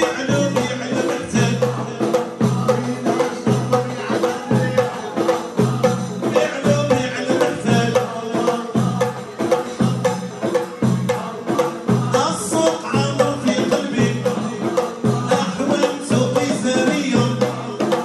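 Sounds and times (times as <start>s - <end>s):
frame drums beating fast rhythm: 0.0s - 18.0s.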